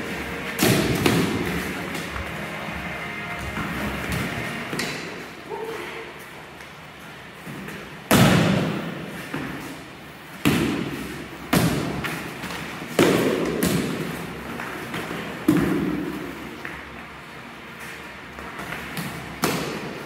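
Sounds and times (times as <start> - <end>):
padded swords thudding on shields: 0.4 - 2.1.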